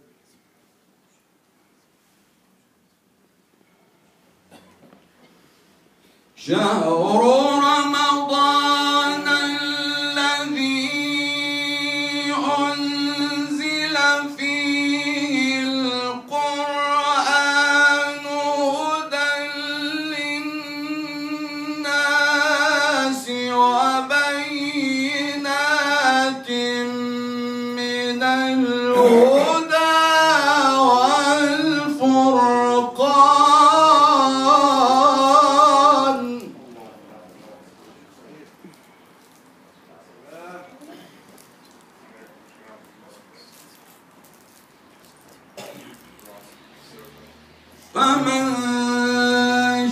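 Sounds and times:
man chanting into microphone: 6.4 - 36.9, 46.6 - 49.9.

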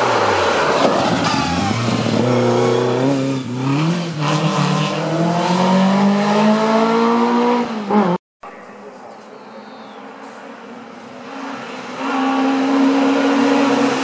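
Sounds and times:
race car accelerating: 0.0 - 8.2, 9.7 - 14.0.

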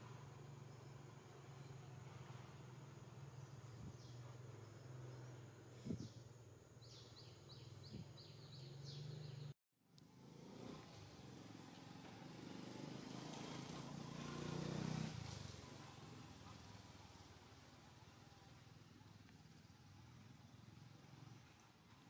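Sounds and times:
insect drone: 0.0 - 9.5
bird chirping: 3.2 - 9.5.

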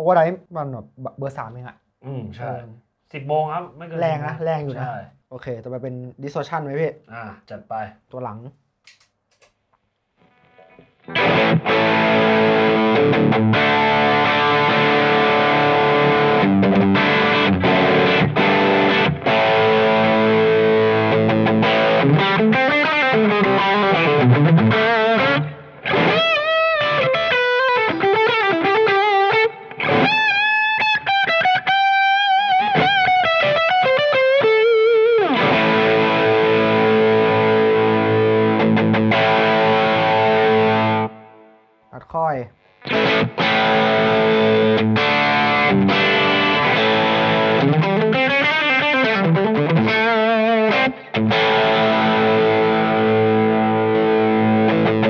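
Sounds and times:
distorted electric guitar chords: 10.2 - 41.8, 42.6 - 55.0
electric guitar lead with bends: 10.3 - 41.6, 42.8 - 55.0.

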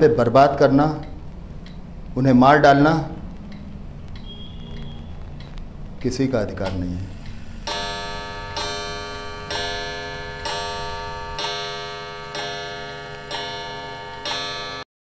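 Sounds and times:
bell striking: 7.6 - 14.8.

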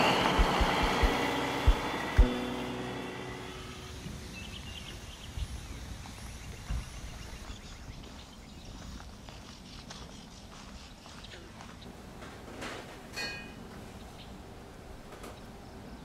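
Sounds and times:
low thumps: 0.0 - 2.8
vehicle engine: 0.0 - 4.6.

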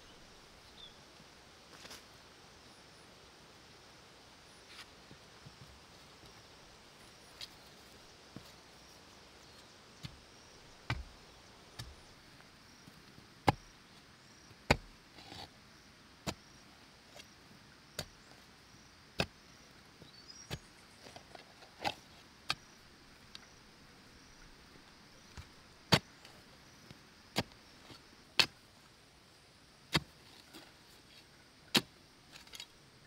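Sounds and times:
hoe chopping into dry earth: 10.0 - 11.2, 11.8 - 12.1, 13.4 - 13.8, 14.7 - 15.5, 16.2 - 16.5, 19.2 - 19.4, 25.3 - 26.3, 27.3 - 28.6, 29.9 - 30.2, 31.7 - 31.9.

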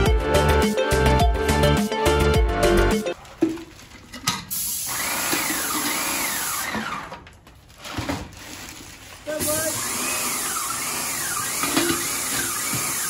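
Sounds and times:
background music: 0.0 - 3.2
paint sprayer hissing: 4.5 - 6.6, 9.3 - 13.0.

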